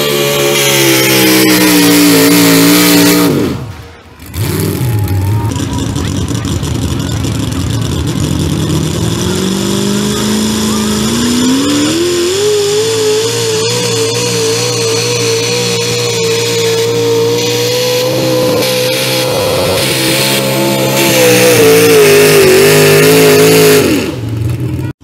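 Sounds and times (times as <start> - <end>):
pulling tractor engine at full throttle: 0.0 - 25.0.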